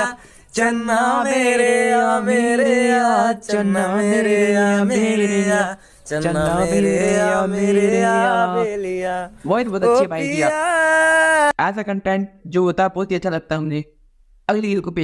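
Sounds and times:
man singing unaccompanied: 0.0 - 11.6.

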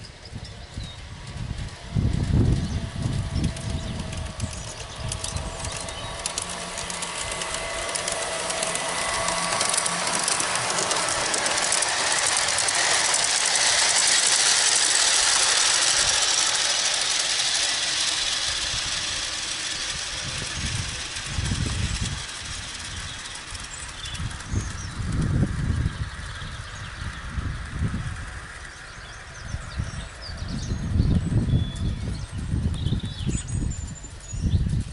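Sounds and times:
model train wheels rattling: 0.0 - 34.9.

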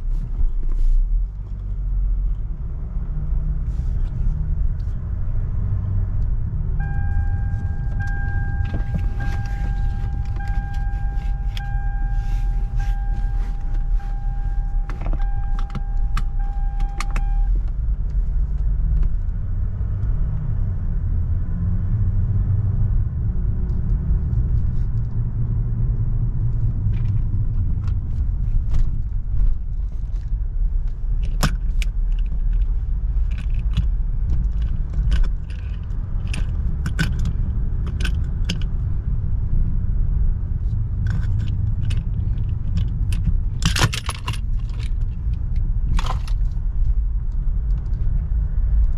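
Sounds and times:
car cabin rumble: 0.0 - 48.9
steady electronic tone: 6.8 - 17.6
sharp clicks and rattles: 26.8 - 38.9, 41.0 - 48.9.

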